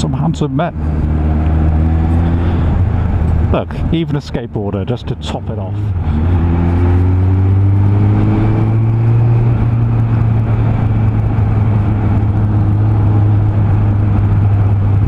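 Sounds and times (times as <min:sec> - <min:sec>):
rushing wind noise: 0:00.0 - 0:04.7, 0:05.4 - 0:15.0
motorcycle engine running: 0:05.8 - 0:15.0.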